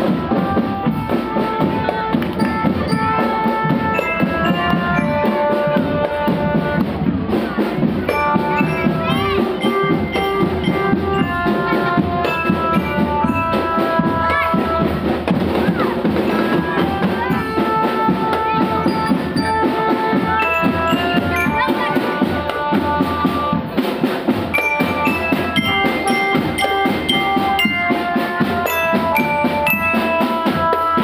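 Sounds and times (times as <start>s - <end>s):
snare and bass drums: 0.0s - 31.0s
bell lyre melody: 2.4s - 6.1s, 8.1s - 14.9s, 16.3s - 22.3s, 24.5s - 31.0s.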